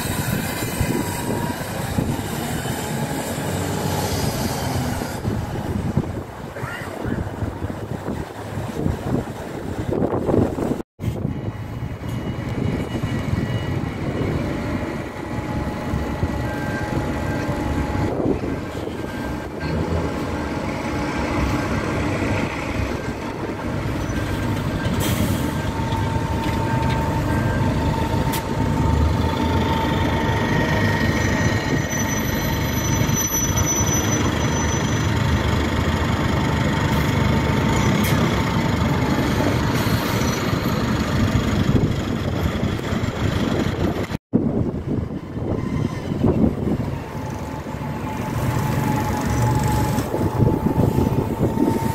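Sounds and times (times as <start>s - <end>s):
bus engines running: 0.0s - 51.9s.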